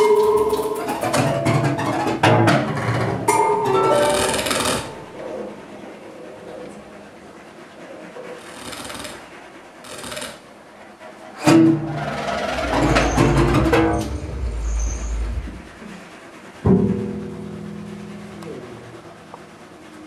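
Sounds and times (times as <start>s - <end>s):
held pitched tones: 11.9s - 16.0s
deep low rumble: 12.4s - 16.0s.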